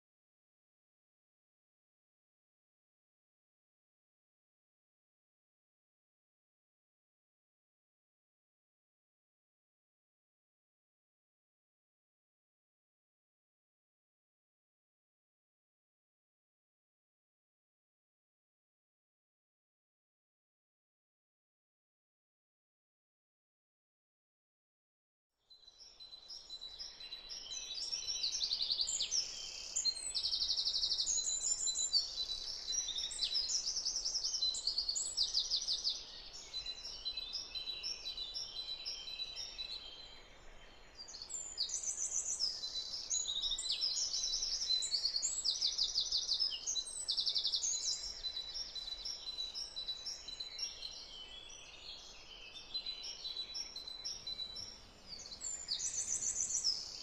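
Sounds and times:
songbirds singing and chirping: 25.4 - 57.0.

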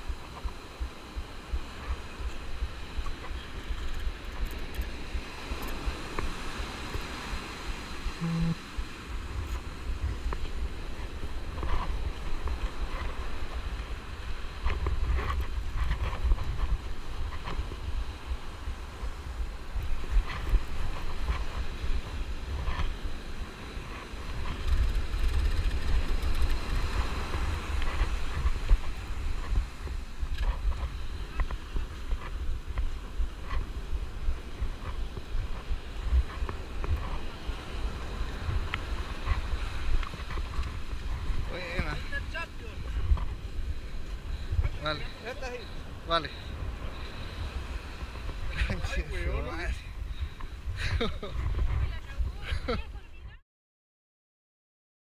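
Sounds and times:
breaking surf: 0.0 - 52.4
wind buffeting microphone: 0.0 - 53.4
brief low tone: 8.2 - 8.6.

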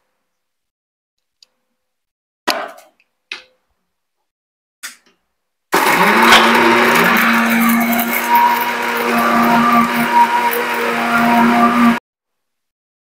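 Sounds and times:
mixer grinder motor grinding: 5.8 - 12.0.

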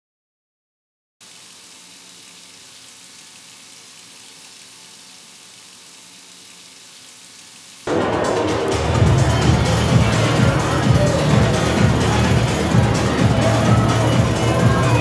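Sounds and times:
steady hiss: 1.2 - 15.0
electronic music with strong bass: 7.9 - 15.0.

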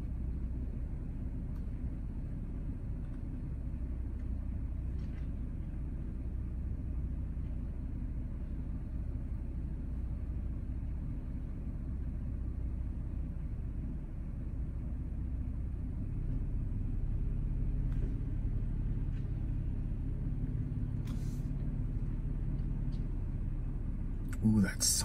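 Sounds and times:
truck engine idling: 0.0 - 25.0.

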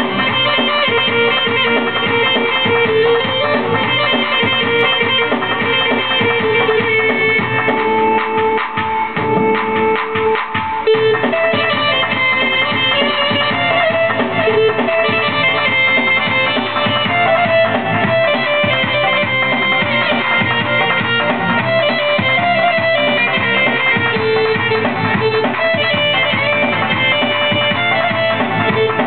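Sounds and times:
keyboard melody with accompaniment: 0.0 - 29.0.

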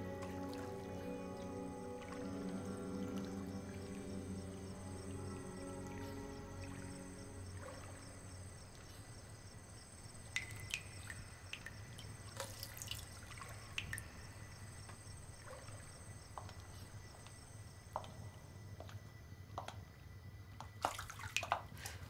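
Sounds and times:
faint steady hiss: 0.0 - 22.0
water dripping into bathtub: 10.2 - 16.7, 20.6 - 22.0.

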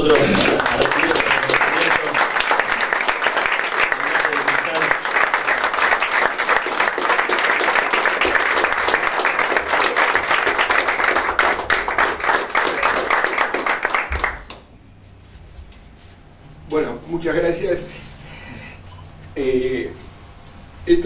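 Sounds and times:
audience applauding: 0.0 - 14.7.

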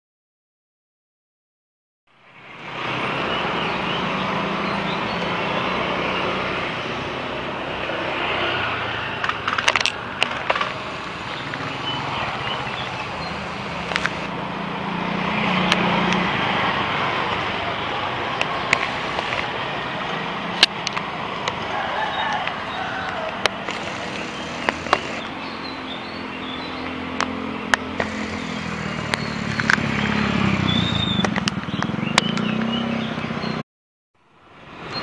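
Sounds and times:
road traffic: 2.1 - 33.6, 34.2 - 35.0
motorcycles passing: 2.2 - 33.6
sharp clicks: 9.2 - 14.3, 18.4 - 19.5, 22.3 - 25.3, 26.8 - 30.1
low engine hum: 9.9 - 33.6.

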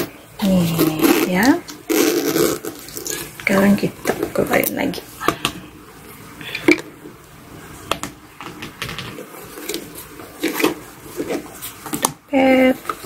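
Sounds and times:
rustling inside nylon bag: 0.0 - 5.2.

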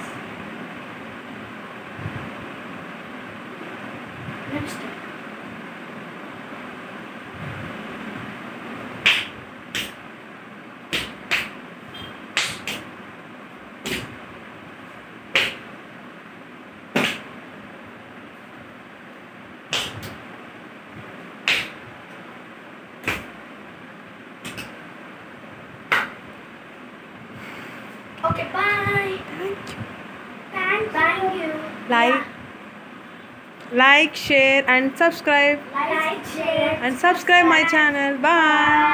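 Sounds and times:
sharp slaps: 9.0 - 10.0, 10.9 - 11.6, 12.3 - 12.9, 13.8 - 14.2, 15.3 - 15.7, 16.9 - 17.3, 19.7 - 20.2, 21.4 - 21.9, 23.0 - 23.4, 24.4 - 24.8, 25.9 - 26.2.

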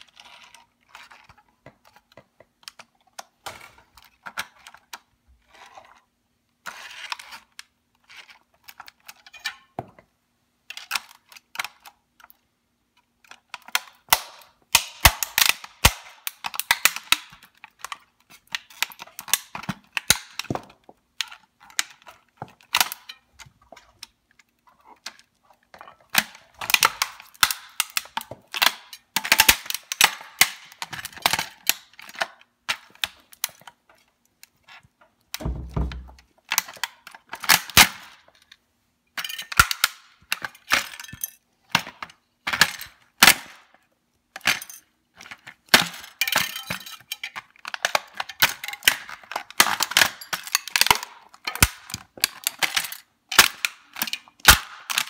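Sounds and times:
plastic toy cracking and snapping: 10.7 - 38.6, 39.2 - 55.0.

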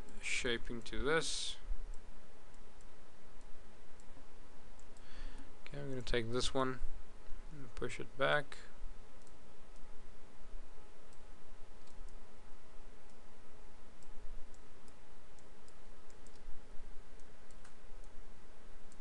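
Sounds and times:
steady hum and hiss: 0.0 - 19.0
computer mouse clicking: 4.7 - 5.1, 9.2 - 9.9, 11.1 - 12.2, 14.0 - 16.5, 17.1 - 18.2.

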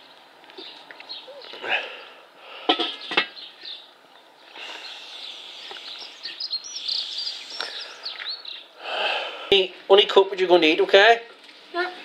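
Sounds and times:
small birds chirping: 0.0 - 9.5.

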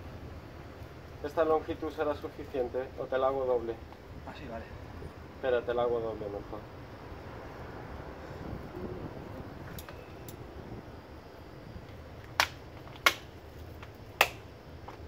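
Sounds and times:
sharp clicks: 12.2 - 14.4.

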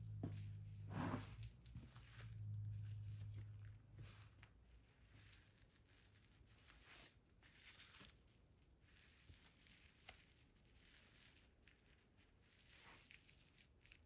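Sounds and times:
footsteps on tile floor: 0.0 - 2.3.

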